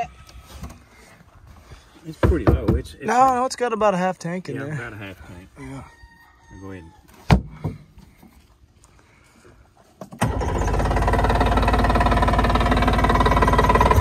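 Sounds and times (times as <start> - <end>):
outboard motor starting and running: 10.0 - 14.0.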